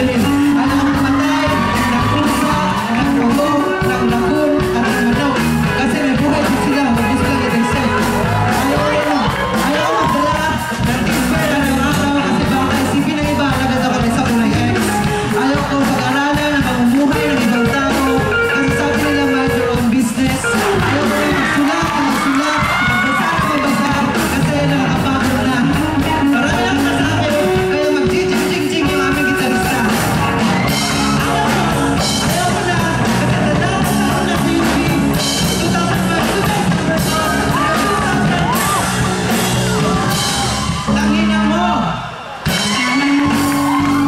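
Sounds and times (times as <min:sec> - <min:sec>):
man singing into a microphone: 0:00.0 - 0:30.1, 0:30.8 - 0:40.2, 0:42.6 - 0:44.0
drum beat: 0:00.0 - 0:41.6, 0:42.4 - 0:44.0
rock band playing: 0:00.0 - 0:44.0
people yelling: 0:00.2 - 0:04.2, 0:04.9 - 0:10.7, 0:20.4 - 0:24.3, 0:37.1 - 0:44.0.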